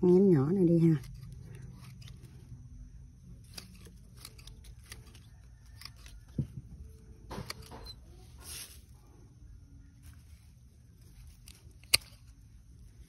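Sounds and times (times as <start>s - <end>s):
scissors snipping stems: 1.0s - 2.4s, 3.4s - 8.0s, 11.1s - 12.4s.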